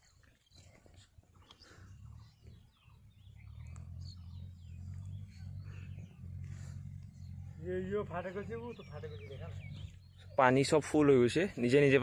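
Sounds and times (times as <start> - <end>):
small birds chirping: 0.0 - 12.0
low steady rumble: 1.7 - 11.0.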